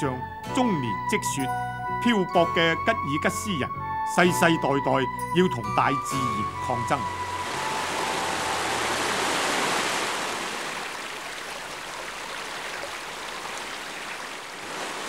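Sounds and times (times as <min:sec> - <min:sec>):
river rushing over rocks: 0:07.3 - 0:15.0.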